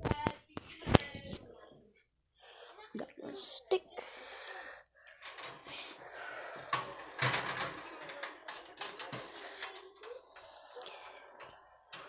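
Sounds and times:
clicks and rustling of handling: 0:06.7 - 0:10.6.

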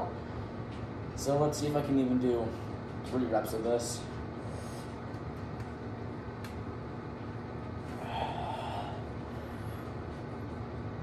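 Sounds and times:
low background hum: 0:00.0 - 0:11.0
man exhaling with effort: 0:07.9 - 0:09.7.

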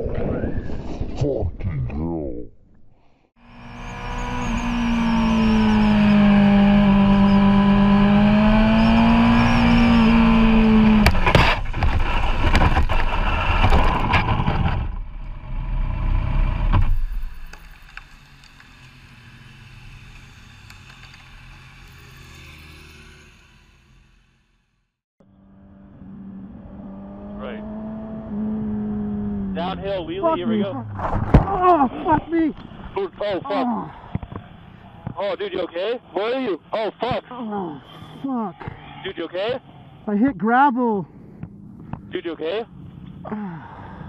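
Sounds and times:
motorcycle engine running: 0:03.4 - 0:13.4, 0:41.1 - 0:43.3
motorcycle scraping on asphalt: 0:03.4 - 0:15.7, 0:28.4 - 0:33.4.

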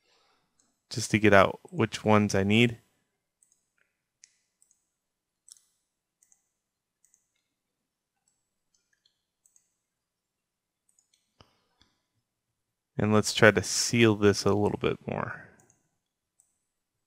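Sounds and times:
faint computer mouse clicks: 0:03.4 - 0:07.5, 0:08.2 - 0:09.7, 0:10.9 - 0:12.0.

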